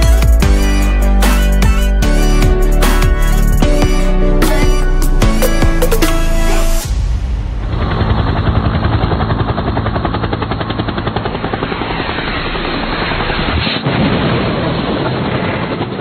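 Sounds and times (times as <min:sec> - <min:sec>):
helicopter rotor chopping: 0:01.6 - 0:06.9, 0:07.5 - 0:13.8.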